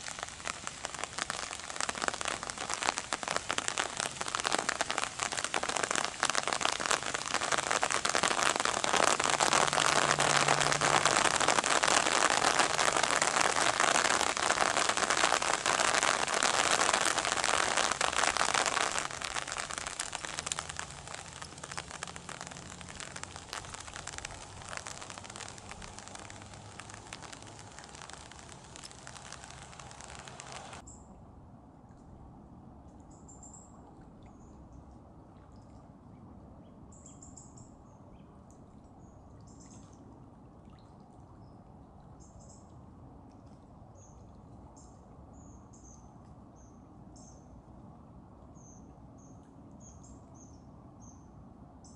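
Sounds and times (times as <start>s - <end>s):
rain pattering on an umbrella: 0.0s - 30.8s.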